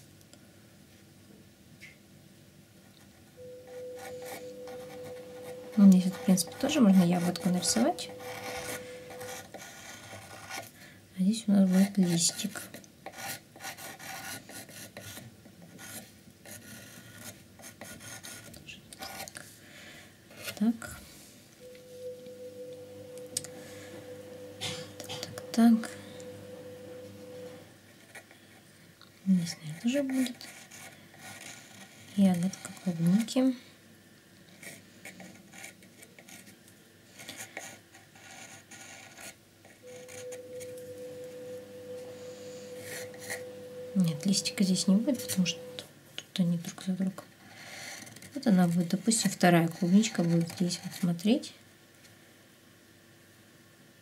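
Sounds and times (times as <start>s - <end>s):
thin steady hum: 2.9s - 12.4s, 18.5s - 33.9s, 39.8s - 47.2s
pencil scratching on wood: 3.7s - 10.7s, 11.6s - 19.3s, 29.7s - 33.3s, 34.5s - 36.5s, 37.2s - 40.7s, 47.5s - 51.2s.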